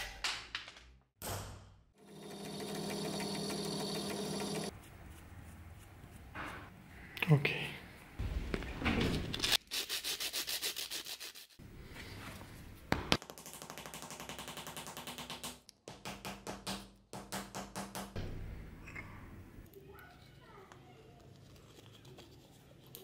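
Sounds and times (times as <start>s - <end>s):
metal rubbed on sandpaper: 9.6s - 11.6s.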